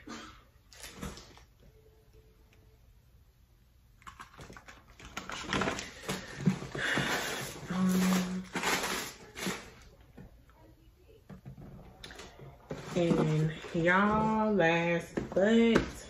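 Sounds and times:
plastic packaging crinkling: 0:04.9 - 0:09.9.

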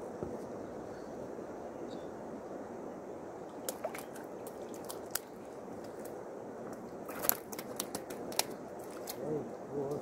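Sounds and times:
running water: 0:03.2 - 0:10.0
small splashes: 0:03.5 - 0:06.1.

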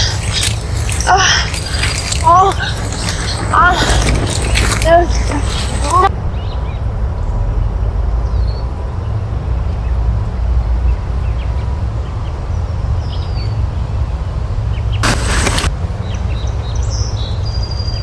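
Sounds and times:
wind rumble on microphone: 0:00.0 - 0:18.0
burst of rushing noise: 0:15.0 - 0:15.7.

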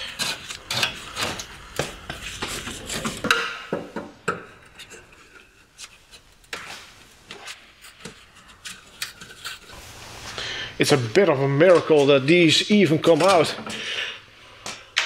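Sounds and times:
screwdriver scraping and clicking: 0:00.0 - 0:03.2, 0:07.3 - 0:09.8.

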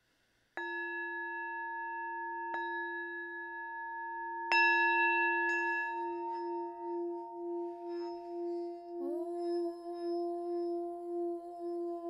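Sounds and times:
singing bowl ringing: 0:00.6 - 0:12.0
singing bowl struck: 0:00.6 - 0:12.0.

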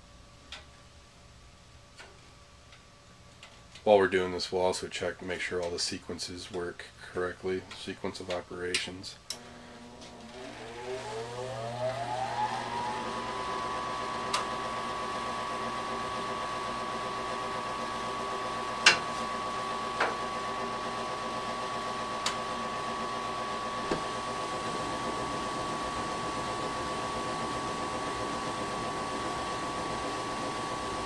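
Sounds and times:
draft inducer motor whine: 0:09.3 - 0:31.0.

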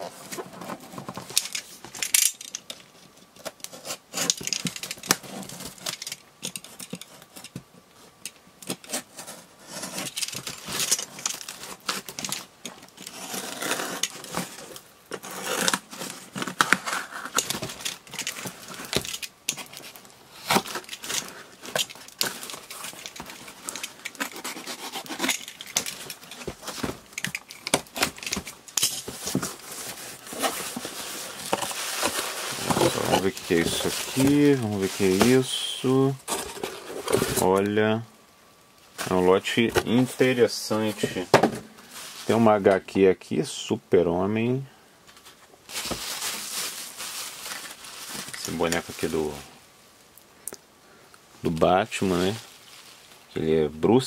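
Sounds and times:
box cutter slicing packing tape: 0:23.7 - 0:26.8.

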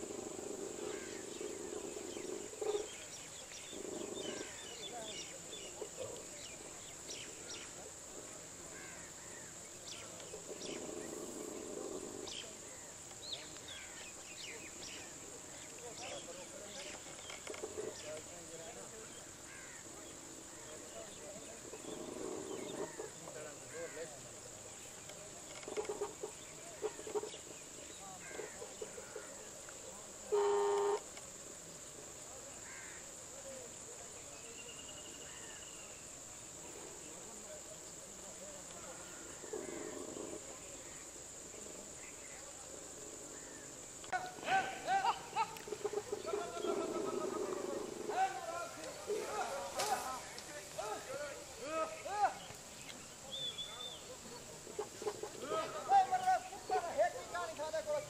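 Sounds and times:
insect drone: 0:00.0 - 0:58.0
faint bird chirps: 0:34.2 - 0:36.5, 0:51.8 - 0:55.6
bird chirps: 0:52.4 - 0:55.3.

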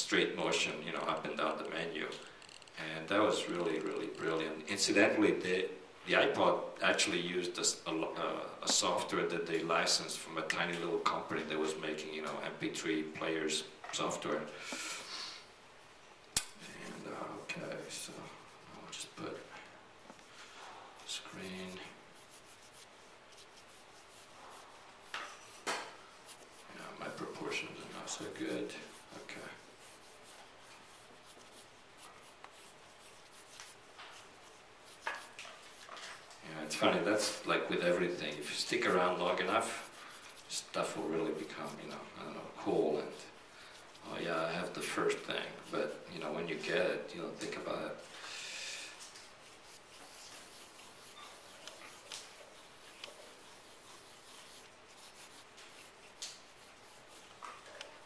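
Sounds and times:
pencil scratching on paper: 0:20.1 - 0:48.2, 0:49.2 - 0:58.0.

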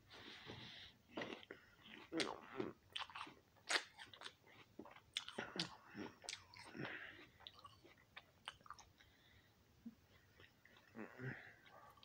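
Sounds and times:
person chewing apple crunches: 0:01.1 - 0:09.1.

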